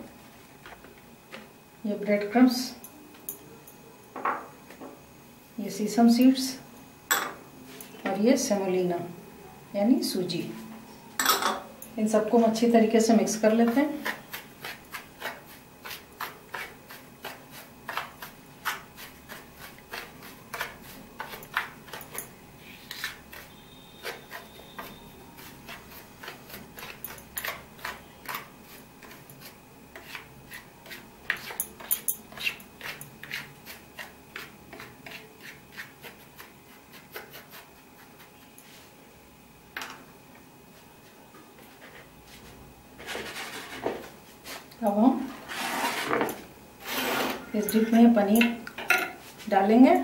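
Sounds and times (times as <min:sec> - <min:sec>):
spatula scraping a plate: 0:13.6 - 0:38.3, 0:45.3 - 0:47.9.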